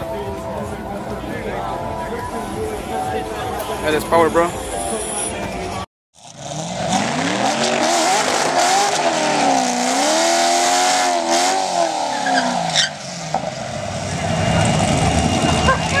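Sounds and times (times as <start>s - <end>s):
car engine at high revs: 6.2s - 16.0s.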